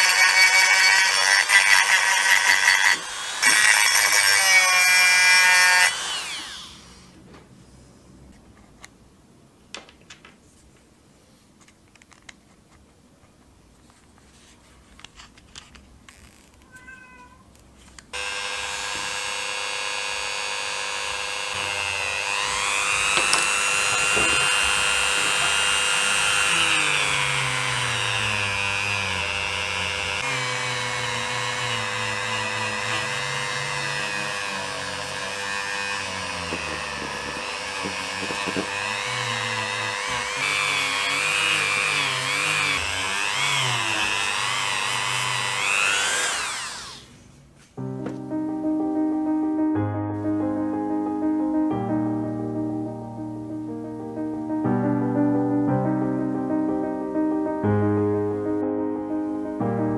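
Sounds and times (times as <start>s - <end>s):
rotary tool whining: 0.0s - 7.2s, 18.1s - 47.1s.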